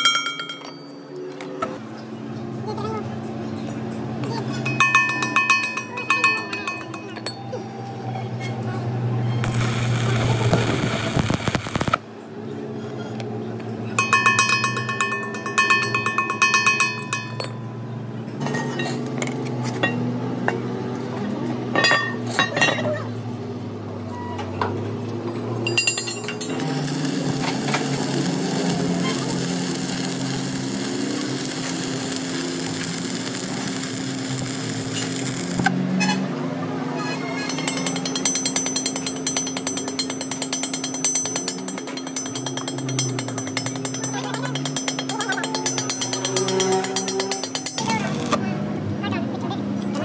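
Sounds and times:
metal clinking and striking: 0.0s - 1.0s, 4.5s - 7.6s, 14.0s - 20.1s, 25.6s - 35.7s, 37.4s - 48.4s
steady hum: 9.4s - 12.0s.

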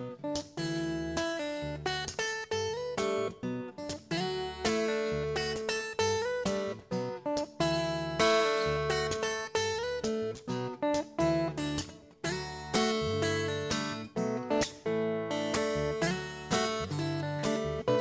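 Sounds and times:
acoustic guitar chords: 0.0s - 18.0s.

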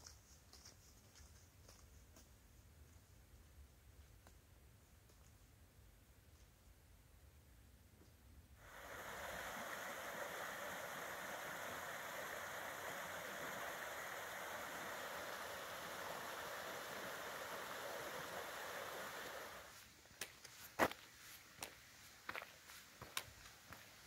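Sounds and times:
water rushing over stones: 8.6s - 19.7s.

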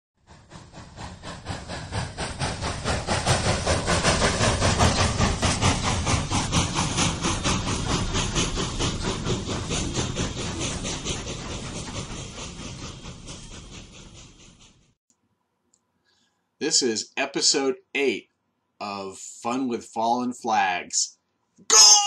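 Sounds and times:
steam locomotive chuffing: 0.2s - 15.0s, 21.7s - 22.0s.

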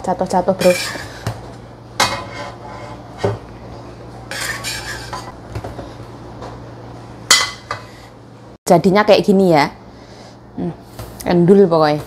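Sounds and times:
metal spatula scraping a pan: 0.6s - 1.3s, 2.0s - 3.4s, 4.3s - 5.3s.

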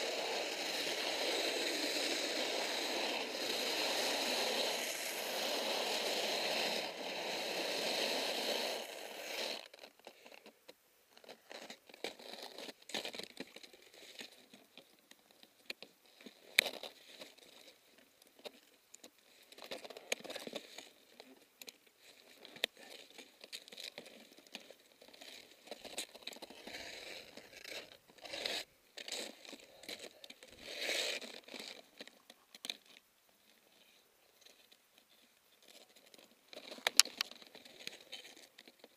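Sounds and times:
skis scraping on hard snow: 0.0s - 10.2s, 24.7s - 31.9s
ski pole clicks: 36.6s - 38.9s.

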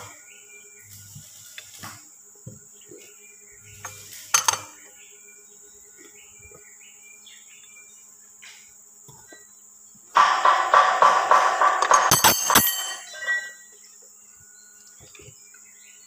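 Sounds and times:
faint chirping: 0.0s - 11.0s, 11.8s - 16.0s
steady high hiss: 0.0s - 16.0s
metal tools clanking on gear: 3.8s - 4.7s, 11.5s - 13.7s
music: 10.2s - 13.0s.

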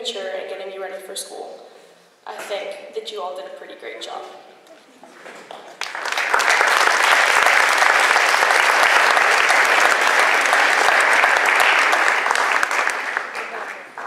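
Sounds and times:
audience applauding: 5.4s - 14.0s.

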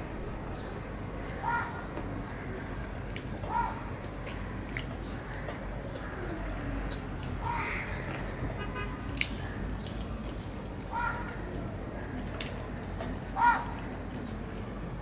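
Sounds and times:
wet chewing: 3.1s - 8.3s, 9.2s - 13.1s
crow cawing: 7.4s - 8.0s, 10.9s - 11.4s, 13.4s - 13.7s.

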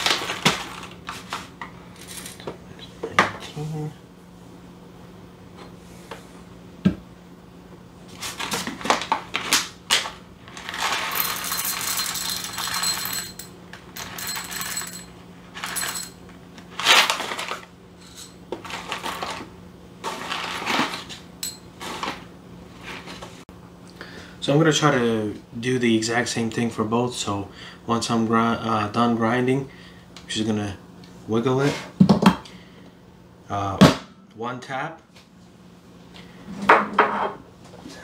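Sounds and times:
coffee beans clattering into glass: 10.6s - 16.2s.

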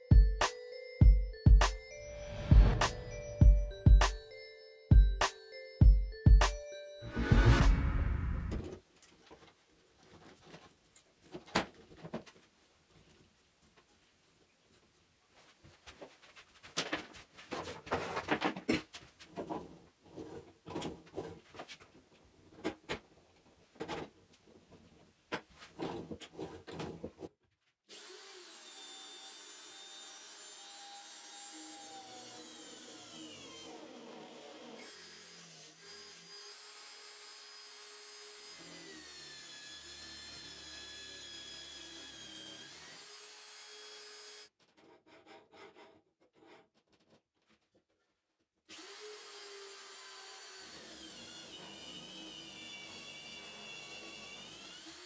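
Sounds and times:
drill motor whining: 27.9s - 36.8s, 48.7s - 55.0s.

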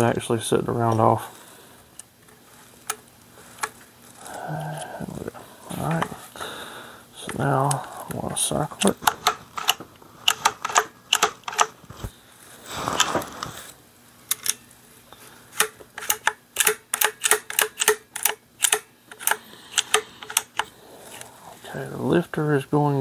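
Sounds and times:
rifle pump action clicking: 8.8s - 11.7s, 15.6s - 20.7s.

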